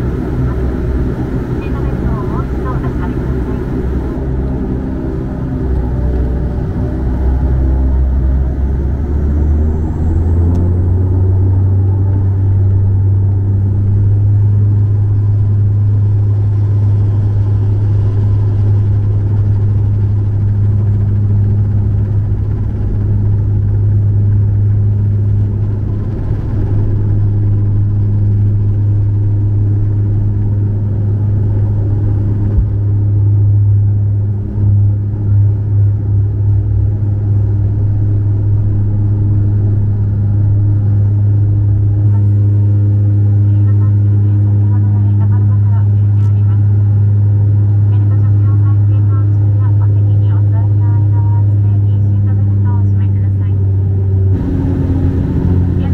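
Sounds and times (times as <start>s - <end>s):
turboprop cabin drone: 0.0s - 55.9s.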